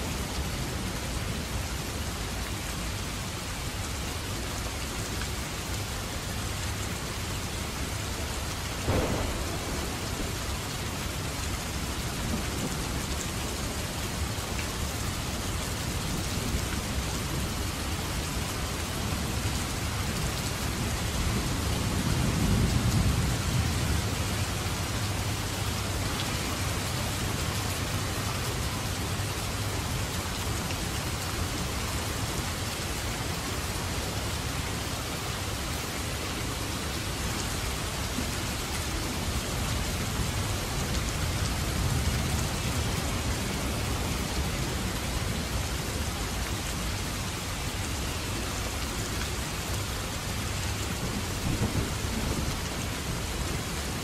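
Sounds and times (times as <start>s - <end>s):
heavy rain hissing: 0.0s - 54.0s
thunder rumbling: 8.8s - 13.5s.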